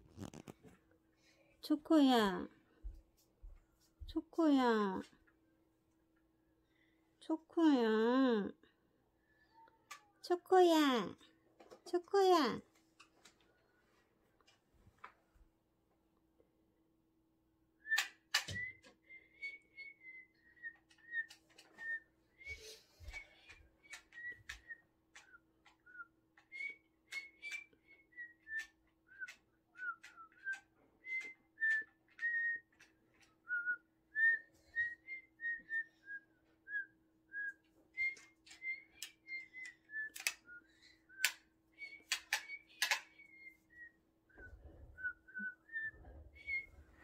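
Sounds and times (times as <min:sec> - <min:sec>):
sharp clicks: 0:41.2 - 0:43.2.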